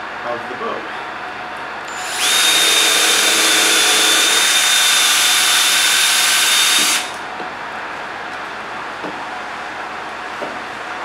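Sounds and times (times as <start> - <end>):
cordless drill boring into wood: 1.9 - 7.2.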